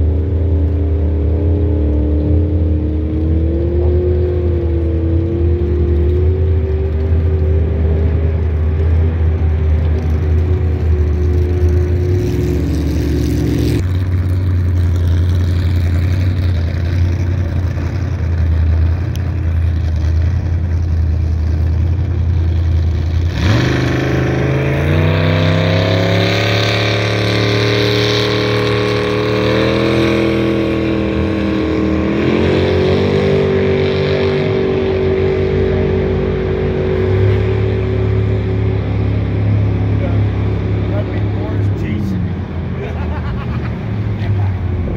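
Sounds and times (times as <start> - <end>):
jet boat engines droning: 0.0 - 44.9
engine revving up sharply: 22.6 - 44.9.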